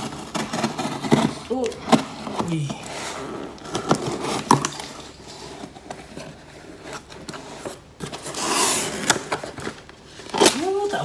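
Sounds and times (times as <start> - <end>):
cardboard rustling and scraping: 0.0 - 11.0
scissors cutting packing tape: 8.1 - 9.6.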